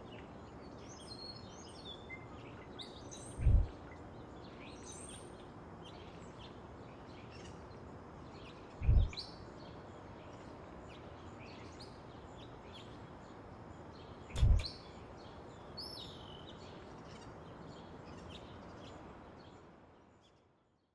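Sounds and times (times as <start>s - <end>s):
background hiss: 0.0s - 20.5s
small birds chirping: 0.0s - 20.9s
short deep thumps: 3.4s - 3.7s, 8.8s - 9.2s, 14.4s - 14.7s.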